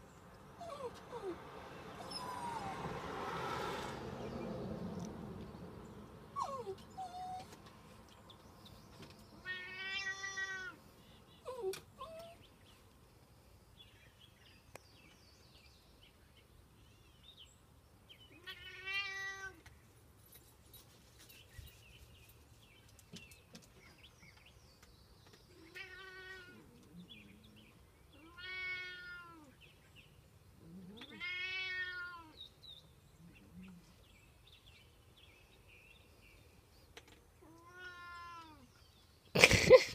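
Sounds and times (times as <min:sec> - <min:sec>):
cat meowing: 0:09.4 - 0:10.8, 0:18.4 - 0:19.6, 0:25.6 - 0:26.8, 0:28.2 - 0:29.5, 0:30.8 - 0:32.4, 0:37.4 - 0:38.7.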